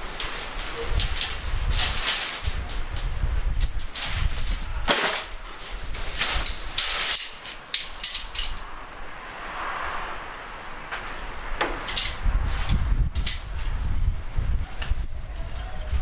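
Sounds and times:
tent fabric rustling: 0:00.0 - 0:08.6
tent pole sections clacking: 0:00.0 - 0:09.4, 0:10.9 - 0:13.9.

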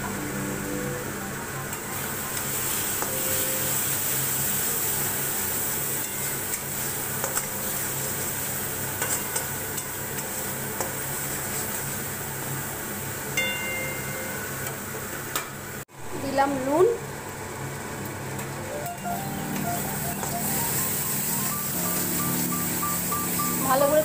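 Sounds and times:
paste sizzling in oil: 0:01.9 - 0:12.2, 0:19.5 - 0:24.0.

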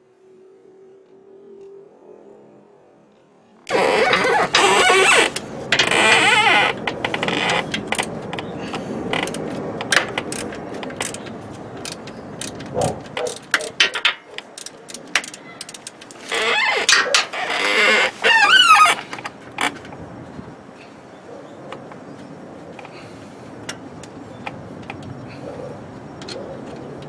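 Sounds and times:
ratchet wrench clicking: 0:09.2 - 0:17.1.

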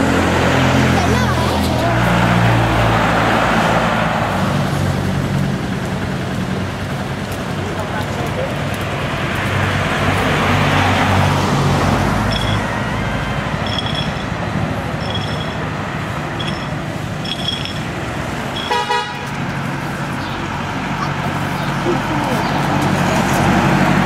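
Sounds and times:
car engine passing by: 0:00.0 - 0:17.4, 0:18.0 - 0:24.0
street traffic: 0:00.0 - 0:24.0
short high chirps: 0:15.0 - 0:15.6
car horn toot: 0:18.6 - 0:19.4.

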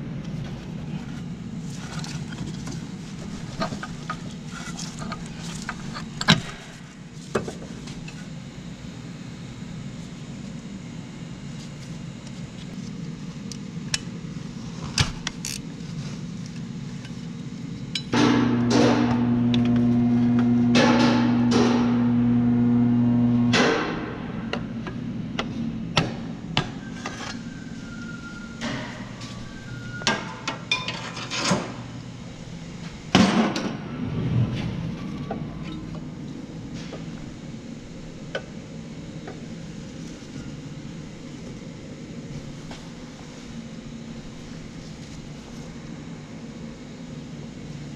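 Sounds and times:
steady electric hum: 0:00.0 - 0:47.9.

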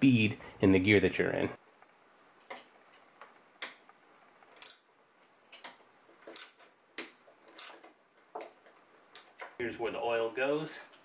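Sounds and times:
hand tool metallic clicks: 0:04.6 - 0:04.9, 0:07.5 - 0:07.9, 0:09.1 - 0:09.4.

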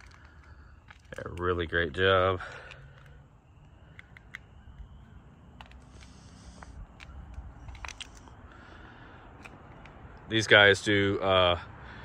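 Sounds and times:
highway traffic rumble: 0:00.0 - 0:12.0
faint clicks: 0:02.5 - 0:04.9.

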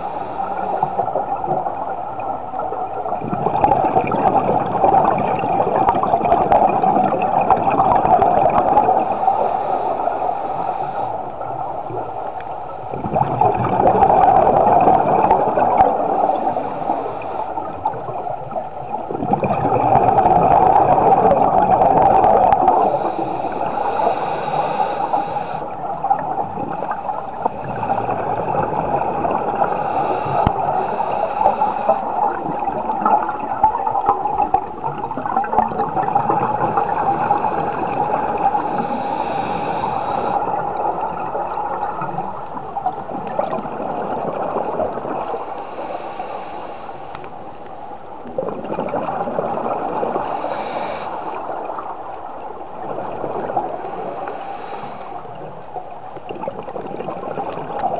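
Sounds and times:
bubbling gurgling exhalations: 0:03.1 - 0:09.4, 0:12.8 - 0:45.5, 0:48.2 - 0:51.6
underwater scuba breathing hiss: 0:08.7 - 0:11.6, 0:15.4 - 0:18.2, 0:20.6 - 0:25.8, 0:26.7 - 0:33.5, 0:36.7 - 0:41.0, 0:45.1 - 0:47.8, 0:49.9 - 0:51.7, 0:53.8 - 0:55.6.

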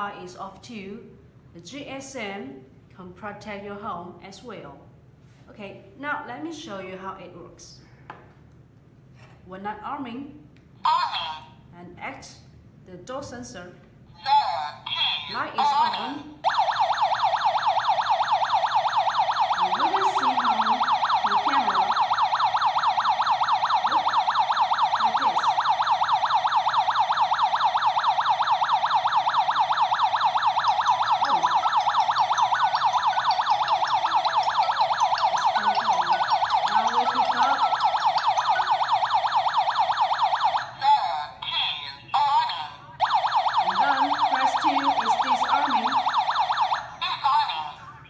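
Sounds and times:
alarm siren warbling: 0:15.3 - 0:41.0, 0:43.0 - 0:47.0.

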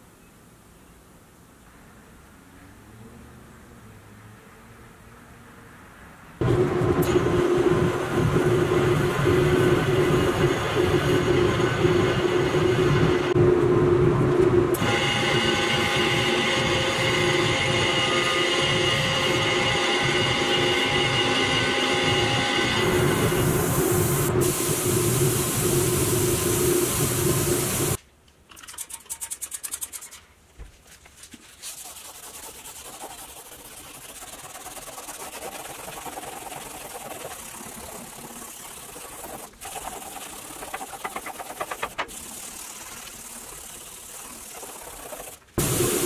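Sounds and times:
spray gun hissing: 0:22.8 - 0:28.0, 0:31.8 - 0:46.0
hands rubbing metal plate: 0:28.7 - 0:30.3, 0:30.9 - 0:45.5.

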